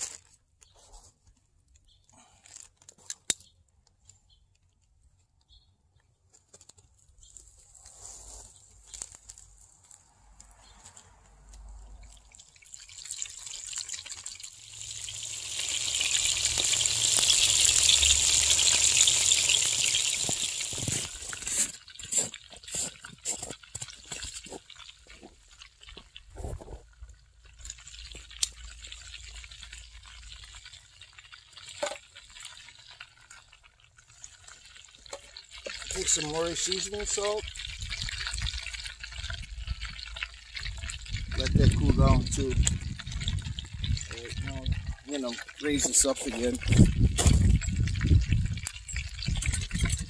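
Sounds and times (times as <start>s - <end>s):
food frying in hot oil: 11.8s - 50.0s.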